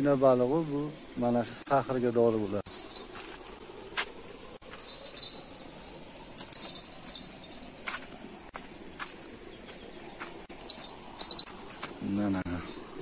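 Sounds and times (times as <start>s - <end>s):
steady outdoor hiss: 0.0s - 13.0s
soft steps on dirt path: 2.7s - 13.0s.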